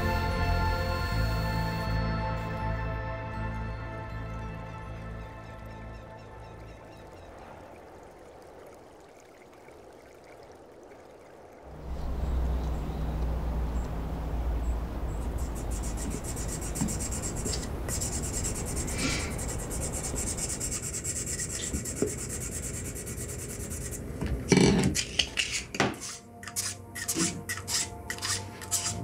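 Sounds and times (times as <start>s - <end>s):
sandpaper rasping on wood: 15.4s - 24.1s, 25.0s - 29.0s.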